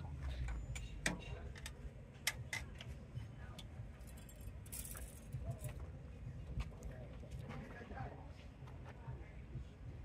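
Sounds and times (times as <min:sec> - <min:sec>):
metallic clicks and clinks: 0:04.0 - 0:05.7.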